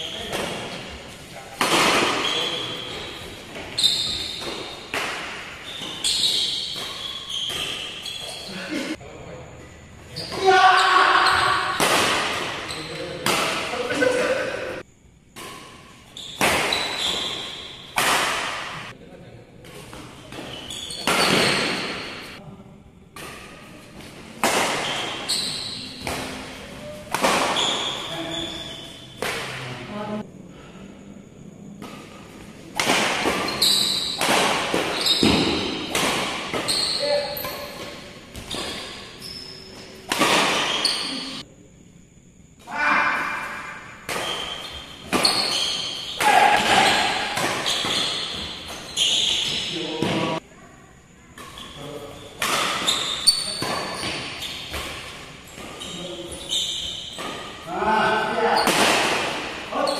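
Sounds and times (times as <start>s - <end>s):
badminton racket hitting shuttlecock: 11.5s - 13.7s, 15.4s - 18.9s, 23.2s - 28.0s, 31.8s - 39.2s, 40.0s - 41.4s, 43.2s - 50.1s, 52.4s - 55.8s.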